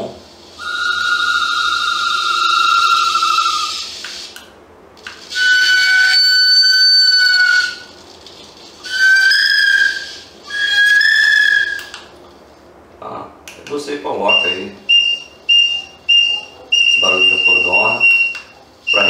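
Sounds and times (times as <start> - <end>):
whistled bird call from speaker: 0.6 - 3.9, 5.3 - 7.9, 8.9 - 12.0, 14.3 - 19.0.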